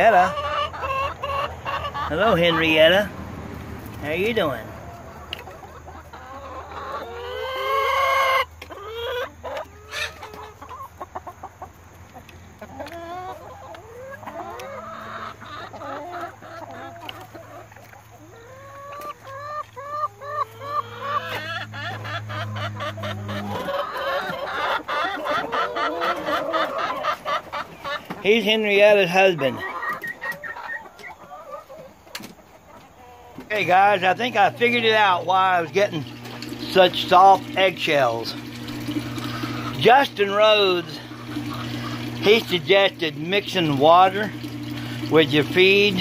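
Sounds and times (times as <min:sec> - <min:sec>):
chickens clucking: 0:00.0 - 0:46.0
chicken rising call: 0:04.4 - 0:11.6, 0:12.6 - 0:32.0, 0:33.0 - 0:42.9.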